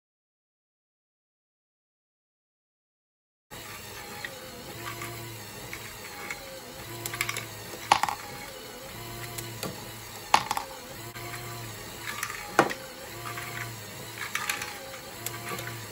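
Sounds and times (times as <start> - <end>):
motor hum: 3.5 - 15.9
plastic mechanism clicking and clacking: 4.2 - 8.6, 12.0 - 15.9.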